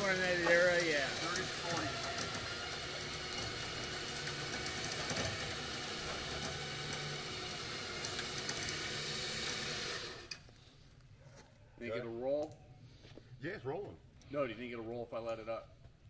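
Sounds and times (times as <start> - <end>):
engine running: 0.0 - 10.4.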